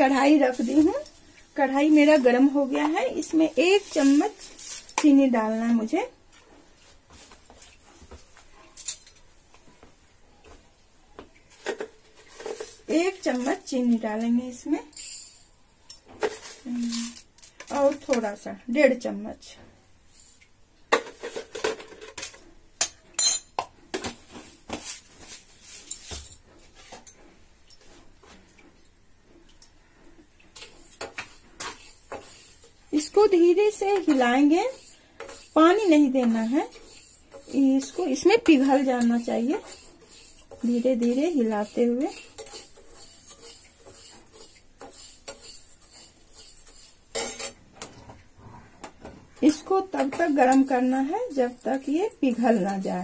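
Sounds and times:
metal spoon scraping sugar: 0.0 - 5.9, 11.6 - 15.6, 16.2 - 18.4, 30.6 - 47.6, 49.4 - 53.0.

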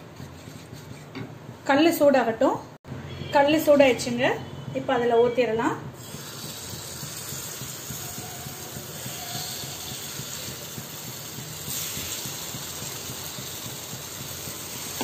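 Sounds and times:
batter sizzling in hot pan: 6.0 - 15.0.

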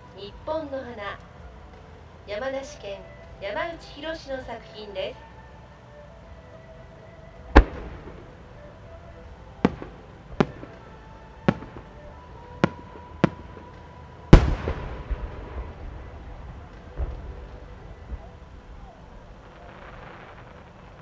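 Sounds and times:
firework sharp pops: 7.6 - 8.3, 9.6 - 10.8, 12.6 - 16.0
firework shell booming: 14.3 - 16.1.

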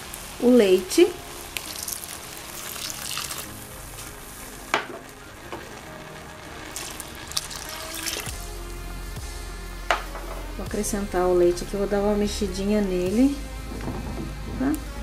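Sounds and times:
rice sizzling in pan: 0.0 - 9.3
milk pouring into pot: 1.6 - 3.6, 6.5 - 8.3.

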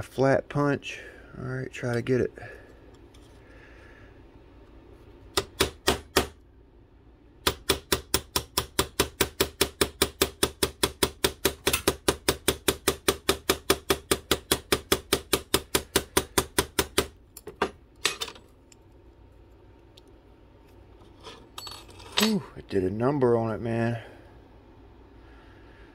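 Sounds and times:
hammer tapping metal punch: 5.3 - 6.4, 7.4 - 18.4.

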